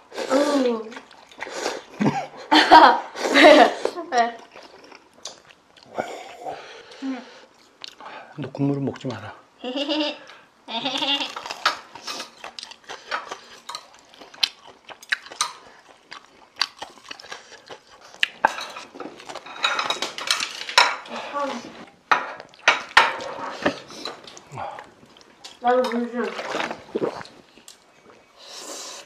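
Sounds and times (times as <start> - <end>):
utensils clinking on dishes: 18.4 - 21.2, 22.1 - 24.4.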